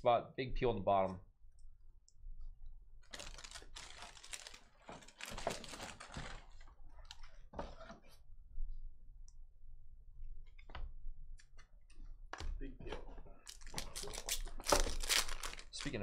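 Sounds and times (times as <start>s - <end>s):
thin plastic crinkling: 3.0s - 7.3s, 13.4s - 16.0s.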